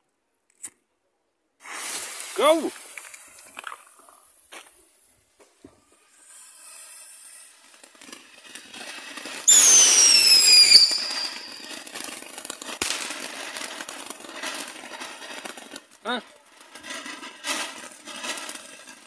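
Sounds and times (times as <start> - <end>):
sharp firework crack: 1.6 - 5.4, 6.1 - 19.0
firework fountain hissing: 1.6 - 19.0
falling firework whistle: 9.4 - 12.5.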